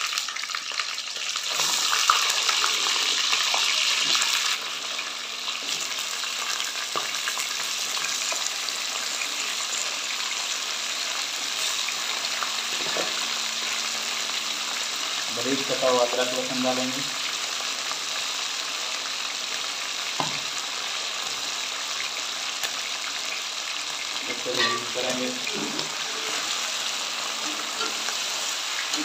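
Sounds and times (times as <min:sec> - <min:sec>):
chicken sizzling in hot oil: 0:00.0 - 0:29.0.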